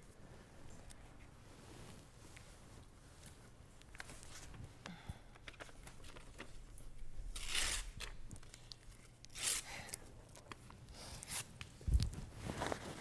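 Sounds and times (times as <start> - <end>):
paper tearing: 7.4 - 8.0.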